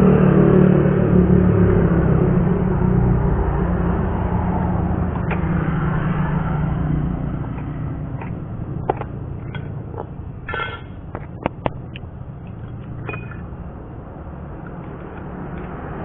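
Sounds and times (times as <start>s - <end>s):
low vehicle rumble: 0.0s - 16.0s
metal scraping on concrete: 7.2s - 13.6s
steel tubes clinking together: 8.9s - 11.0s, 12.9s - 13.5s.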